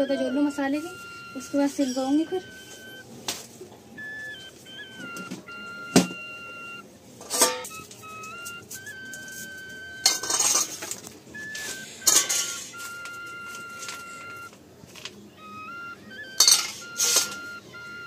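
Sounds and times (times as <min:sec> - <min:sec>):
background tune of held notes: 0:00.0 - 0:18.0
steel bowls clinking: 0:10.0 - 0:13.1, 0:16.4 - 0:17.4.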